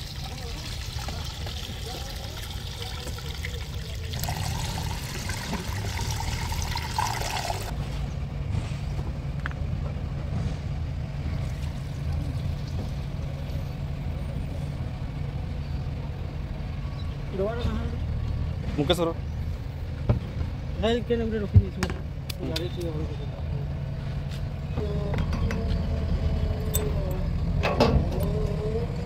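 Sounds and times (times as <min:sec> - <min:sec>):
oil trickling through funnel: 0:00.0 - 0:07.7
low engine hum: 0:00.0 - 0:29.0.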